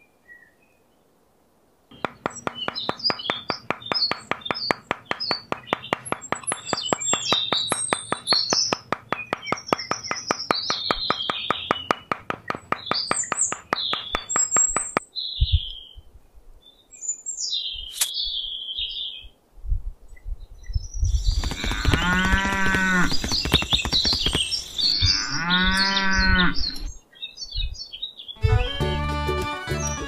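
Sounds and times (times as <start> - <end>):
light hammer taps: 1.9 - 15.0
birds chirping: 1.9 - 16.0, 20.6 - 28.8
cow mooing: 25.0 - 26.8.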